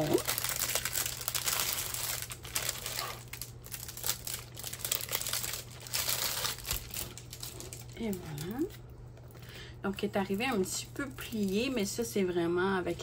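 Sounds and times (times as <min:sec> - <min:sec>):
plastic packaging crinkling: 0:00.0 - 0:09.5, 0:10.2 - 0:12.1.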